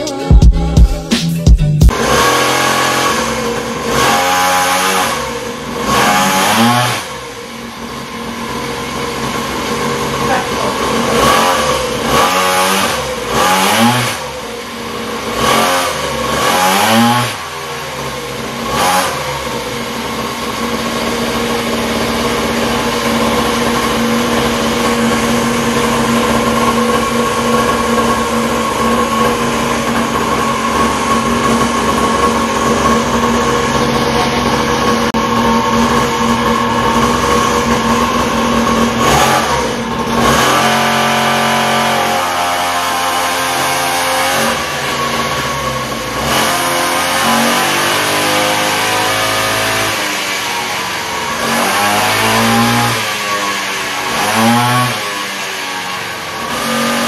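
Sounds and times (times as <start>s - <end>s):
small engine revving: 1.9s - 57.0s.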